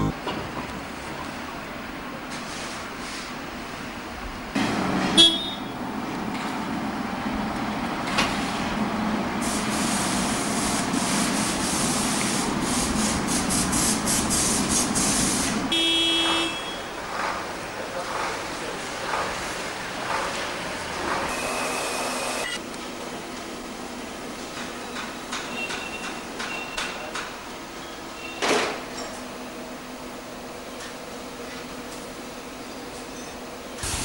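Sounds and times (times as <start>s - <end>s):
street traffic: 0.0s - 34.0s
car horn toot: 5.1s - 5.8s, 15.7s - 16.9s
loud fluttering hiss: 9.4s - 15.7s, 33.8s - 34.0s.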